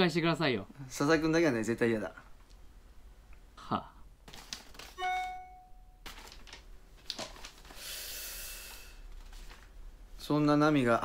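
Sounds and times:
phone notification chime: 5.0s - 6.0s.

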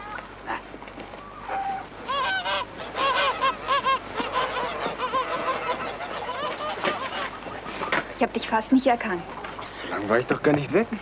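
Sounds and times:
geese honking: 1.2s - 8.6s.

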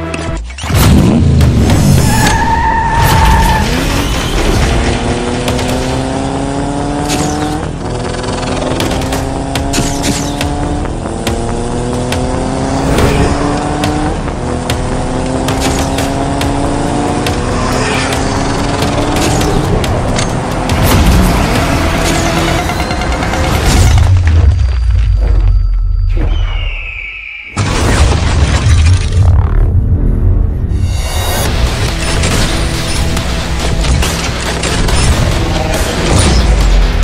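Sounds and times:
motorcycle engine accelerating: 3.6s - 23.8s.

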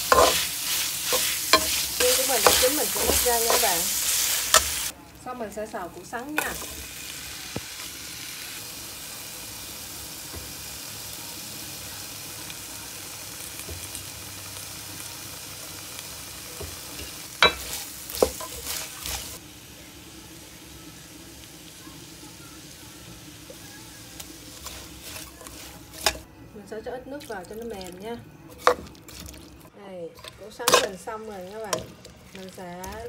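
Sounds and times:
vegetables sizzling in a wok: 0.0s - 33.0s.

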